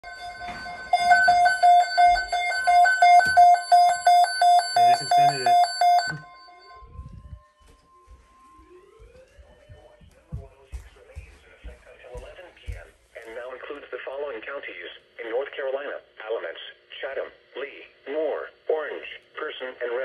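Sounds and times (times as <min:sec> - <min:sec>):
rapid high electronic beeps: 0:00.1 - 0:06.8.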